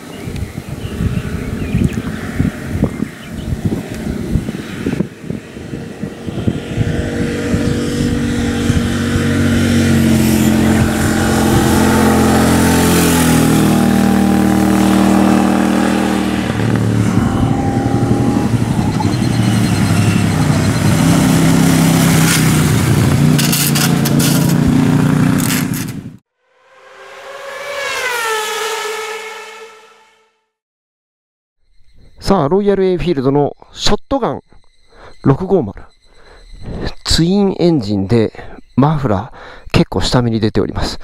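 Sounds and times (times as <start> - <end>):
motorcycle engine passing: 0.8 - 30.5.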